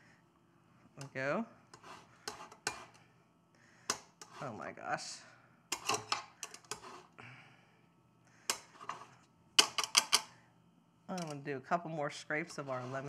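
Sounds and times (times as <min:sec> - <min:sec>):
lemon scraping on zester: 0:01.7 - 0:03.0.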